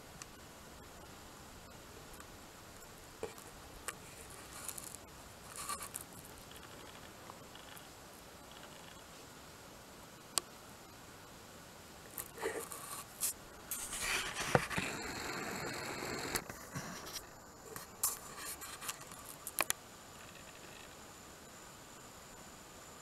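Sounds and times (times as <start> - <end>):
close rustling and scraping: 3.2 - 7.9, 12.1 - 15.0, 16.3 - 19.7.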